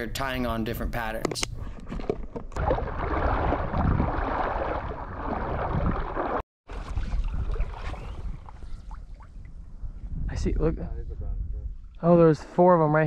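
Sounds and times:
seawater sloshing: 2.6s - 9.5s
wind on microphone: 2.6s - 12.4s.

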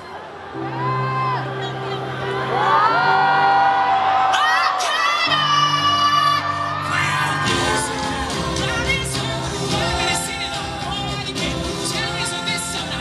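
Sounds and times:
pop band playing: 0.8s - 13.0s
man singing: 4.8s - 13.0s.

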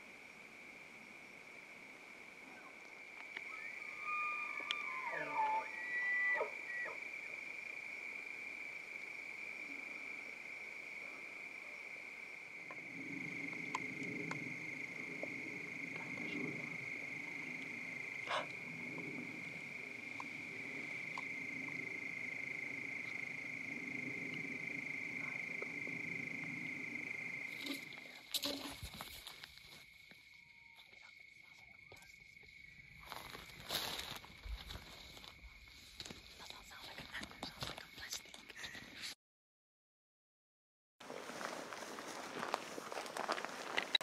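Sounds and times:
crickets trilling: 0.0s - 39.1s, 41.1s - 44.0s
low hum: 12.7s - 29.0s.

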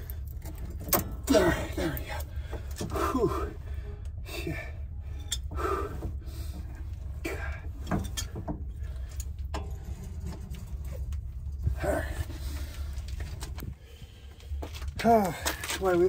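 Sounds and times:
low rumble: 0.0s - 15.2s
person grunting with effort: 1.3s - 2.2s, 2.9s - 3.6s.

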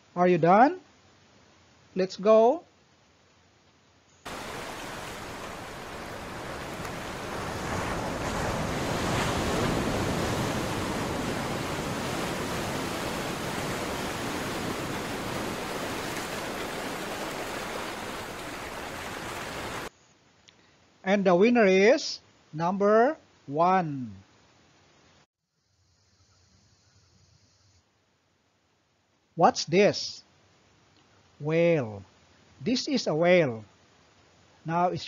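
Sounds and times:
ocean waves rushing hiss: 4.3s - 19.9s.

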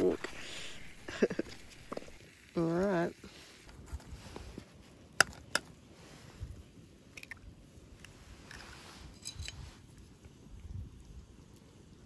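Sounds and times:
eggs cracking and handled: 0.0s - 2.2s, 3.6s - 5.8s, 7.1s - 8.6s.

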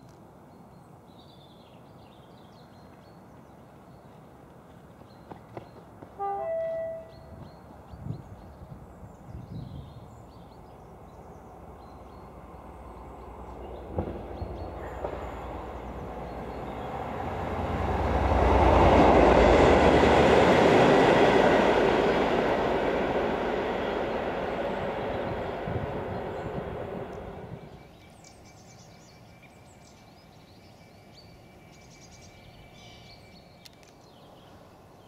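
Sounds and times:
diesel locomotive passing: 4.0s - 35.0s.

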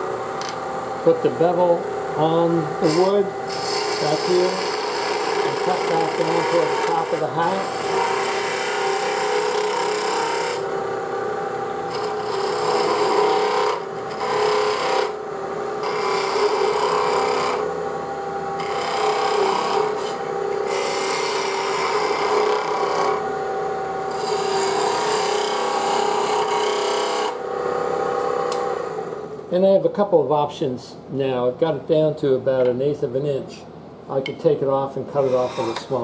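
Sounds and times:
lathe humming: 0.0s - 29.4s, 35.1s - 36.0s
gouge cutting spinning wood: 2.2s - 10.8s, 11.9s - 15.2s, 15.8s - 17.7s, 18.5s - 23.3s, 24.0s - 27.4s, 35.2s - 36.0s.

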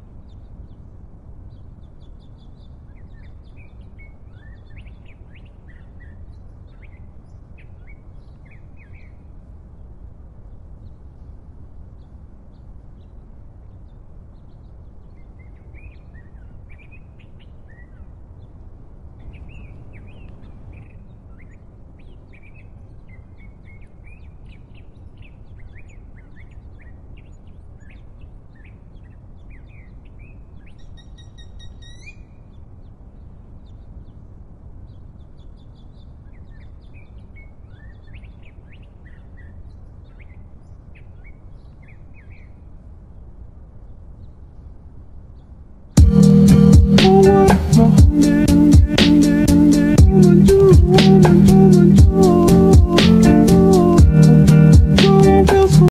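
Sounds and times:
small birds chirping: 45.4s - 55.9s.

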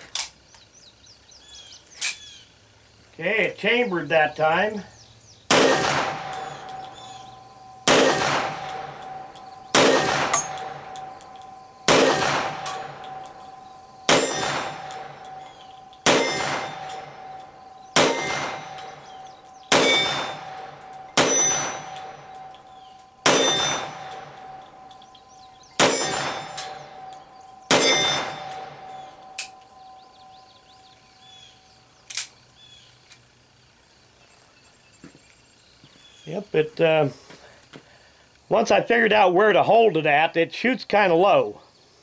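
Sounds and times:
pistol shots: 5.5s - 30.9s
steel target clanging and ringing: 5.5s - 31.5s.

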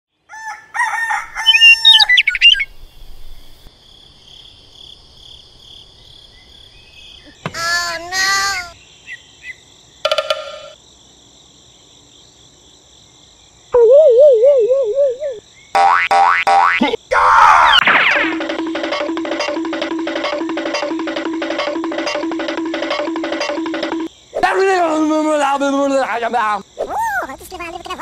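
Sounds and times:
rooster crowing: 0.3s - 2.4s
high chirping bird calls: 1.4s - 3.0s.

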